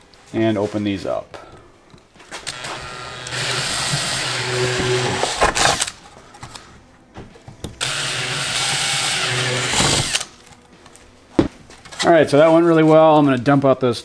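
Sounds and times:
drill drilling into plastic: 2.4 - 5.9, 7.8 - 10.3.

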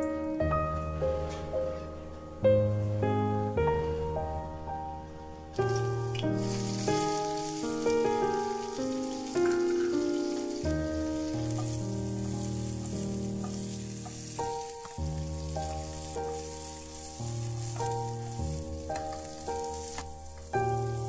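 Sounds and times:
vegetables sizzling in oil: 5.6 - 21.0.

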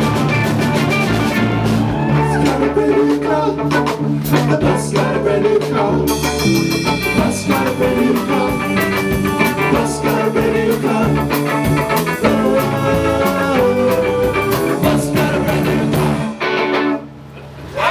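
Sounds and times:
regular drum beat: 0.0 - 16.4
live rock band playing: 0.0 - 17.3.

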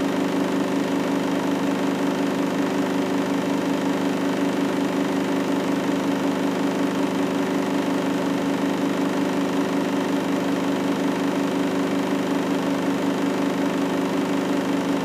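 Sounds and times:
washing machine humming: 0.0 - 15.0.

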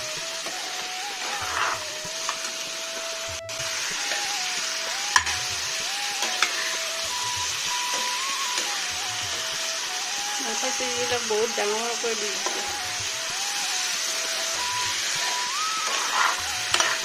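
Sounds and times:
food sizzling in hot oil: 0.0 - 17.0
metal spatula knocking on pan: 5.2 - 5.4.

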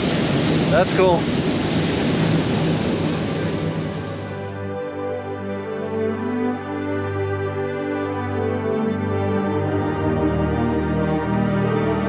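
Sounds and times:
wind and water noise: 0.0 - 12.0
slow soft background music: 3.8 - 12.0.

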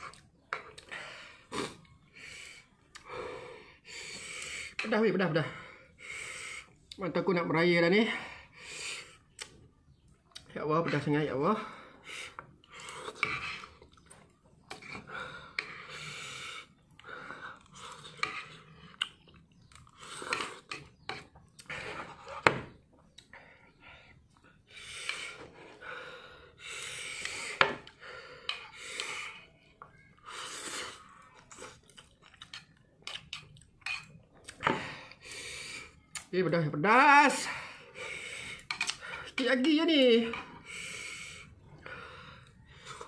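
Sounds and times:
chewing and slurping noodles: 11.8 - 36.3, 40.4 - 43.0.

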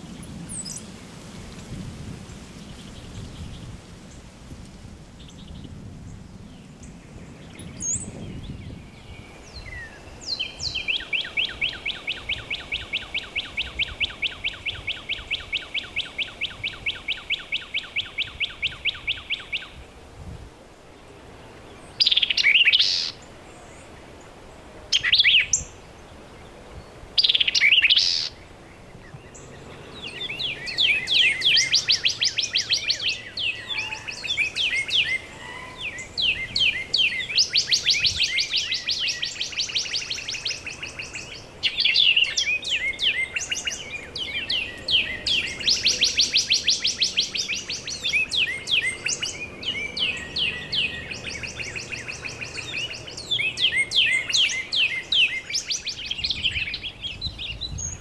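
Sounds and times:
songbird high chattering notes: 29.3 - 58.0.

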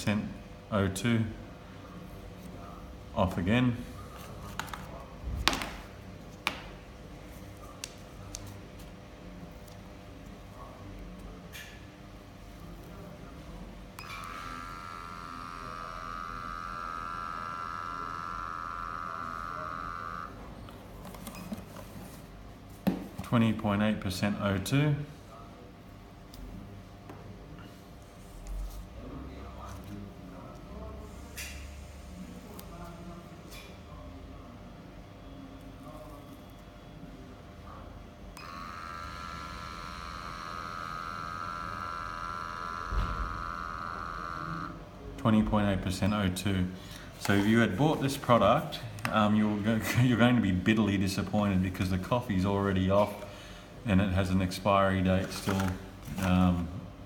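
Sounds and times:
sampling pump running: 13.8 - 21.6, 38.3 - 45.0.

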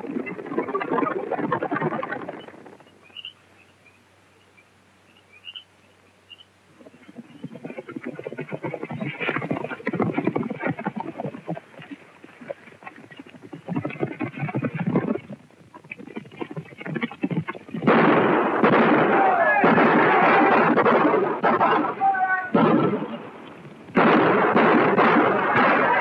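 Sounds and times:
horse hooves and tack clattering: 0.0 - 3.3, 6.7 - 26.0
commotion: 7.1 - 26.0
gunshots: 17.7 - 26.0.

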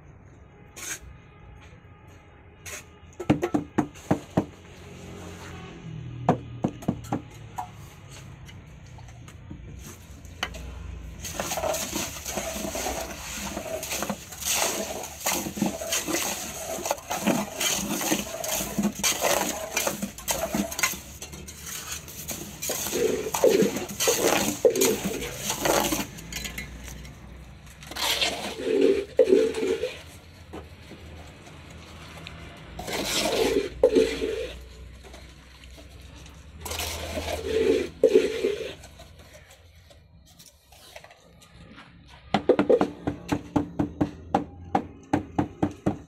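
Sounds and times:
cement scraping in mould: 9.7 - 41.7.

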